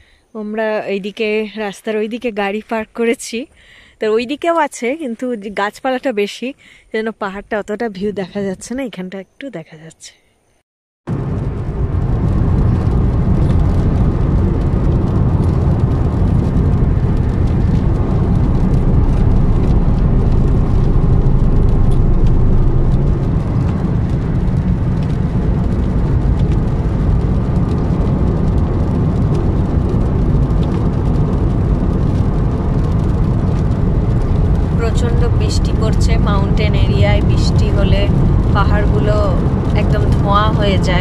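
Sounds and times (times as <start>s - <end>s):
car engine rumble: 11.1s - 41.0s
tyre noise on road: 11.1s - 41.0s.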